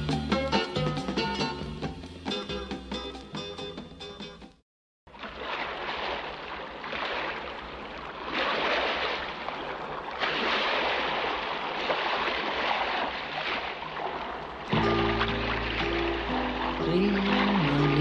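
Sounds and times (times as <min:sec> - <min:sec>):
sea waves: 0:05.1 - 0:18.0
song ending: 0:14.8 - 0:18.0.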